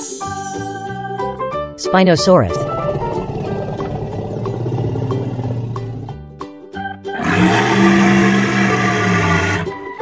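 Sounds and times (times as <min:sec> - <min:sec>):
light children's music: 0:00.0 - 0:02.7, 0:06.2 - 0:10.0
cartoon dinosaur roar: 0:02.5 - 0:06.2, 0:07.1 - 0:09.8
low growl: 0:02.5 - 0:06.2, 0:07.1 - 0:09.8.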